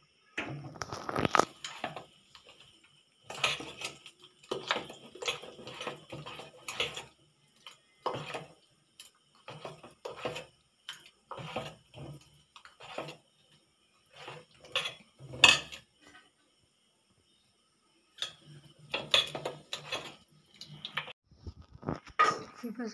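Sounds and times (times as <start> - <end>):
spoon scraping metal pot: 0.4 - 7.2, 8.0 - 13.3, 14.0 - 16.3, 18.2 - 21.0, 21.9 - 22.6.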